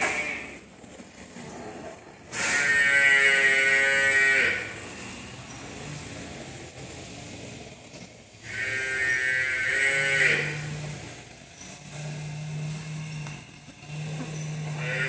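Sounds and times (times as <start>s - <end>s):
water buffalo mooing: 2.3s - 4.9s, 8.4s - 15.0s.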